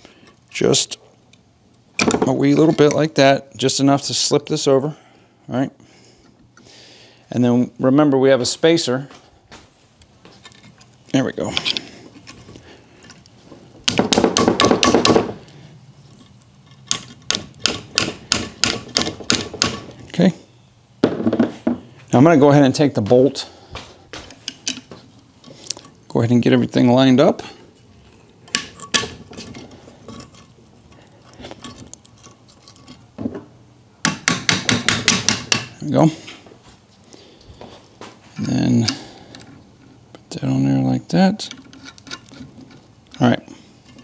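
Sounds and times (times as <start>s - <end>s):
tool tapping on metal: 13.8s - 15.4s, 16.9s - 19.9s, 34.0s - 35.8s
small metal clicks and rubbing: 28.2s - 33.1s, 41.4s - 44.0s.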